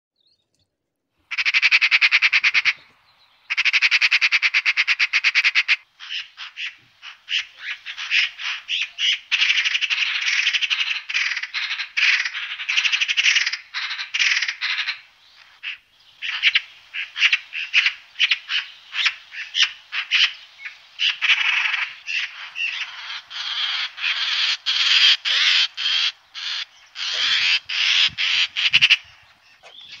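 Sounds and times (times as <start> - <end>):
magpie rattling chatter: 21.0 - 30.0.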